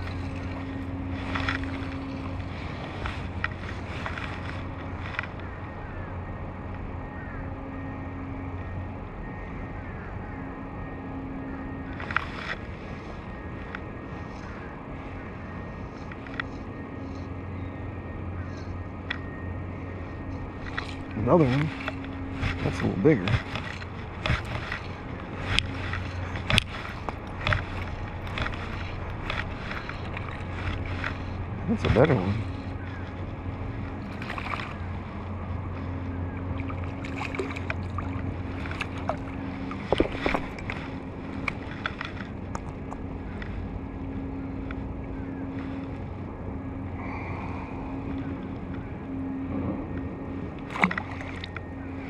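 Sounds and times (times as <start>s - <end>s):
water noise: 0.0s - 6.7s, 18.2s - 52.0s
distant motor hum: 0.0s - 52.0s
wind: 0.0s - 52.0s.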